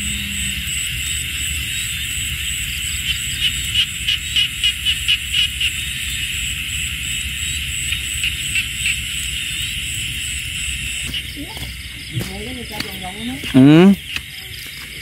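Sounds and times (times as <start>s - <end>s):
pulsing trill: 0.0s - 1.3s
low steady rumble: 0.0s - 13.5s
insects and frogs droning: 0.0s - 15.0s
rhythmic calls: 0.0s - 15.0s.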